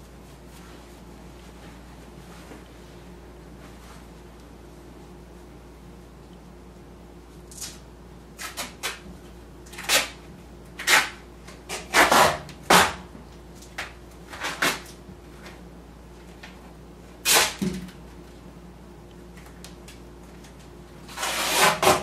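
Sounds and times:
scuffling and clothing rustling: 0:00.0 - 0:05.6
faint hum: 0:00.0 - 0:21.8.

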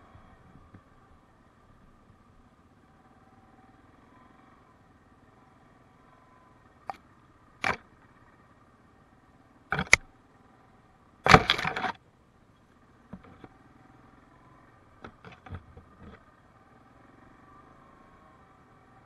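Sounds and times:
atv engine running: 0:00.0 - 0:19.0
clattering rattle: 0:09.7 - 0:10.0, 0:11.3 - 0:12.0, 0:15.0 - 0:16.2
sharp knocks: 0:09.7 - 0:10.1, 0:11.3 - 0:11.9.

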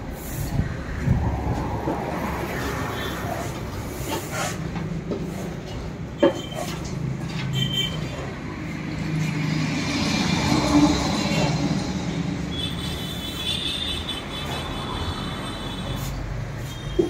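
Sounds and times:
street traffic noise: 0:00.0 - 0:17.0
vehicle passing: 0:00.6 - 0:04.0, 0:08.4 - 0:12.5.

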